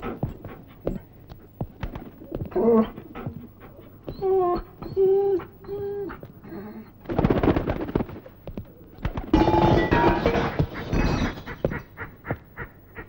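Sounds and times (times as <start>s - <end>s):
dog whining: 2.2s - 7.0s.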